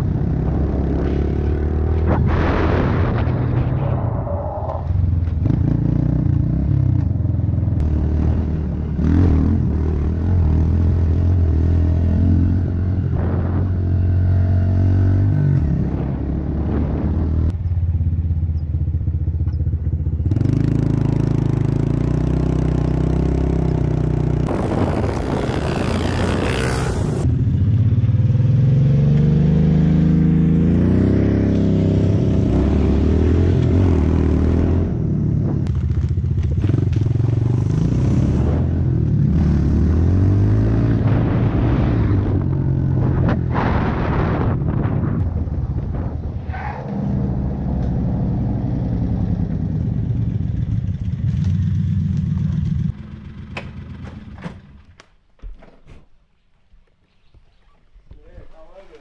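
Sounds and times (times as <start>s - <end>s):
motorbike engine revving: 20.2s - 27.4s, 28.2s - 54.9s
rushing noise: 24.5s - 27.3s.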